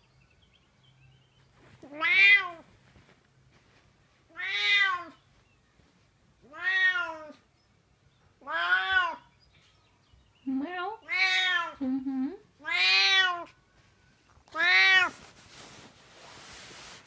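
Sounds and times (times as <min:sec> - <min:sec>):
cat meowing: 0:01.8 - 0:02.6, 0:04.3 - 0:05.2, 0:06.4 - 0:07.4, 0:08.4 - 0:09.3, 0:11.0 - 0:11.8, 0:12.6 - 0:13.6, 0:14.5 - 0:15.1.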